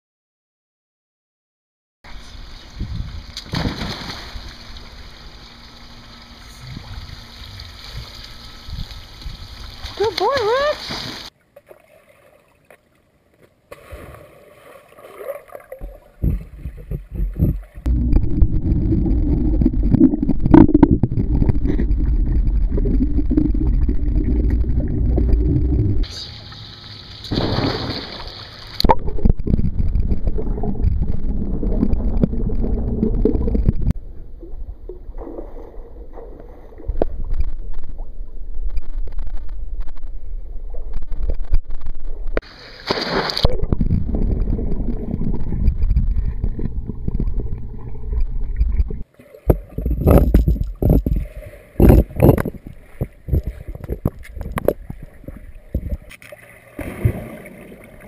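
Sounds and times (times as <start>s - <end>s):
sharp water splashes: 3.3s - 6.2s, 6.8s - 12.7s, 13.7s - 16.7s, 26.0s - 29.3s, 42.4s - 44.6s, 49.0s - 58.0s
muffled underwater churning: 13.8s - 58.0s.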